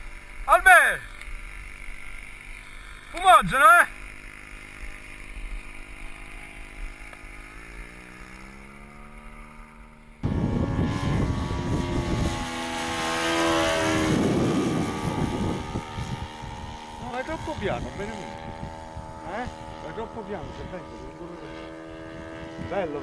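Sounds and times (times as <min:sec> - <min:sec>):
model airplane engine and propeller: 0:00.0 - 0:23.0
wind buffeting: 0:10.2 - 0:21.1.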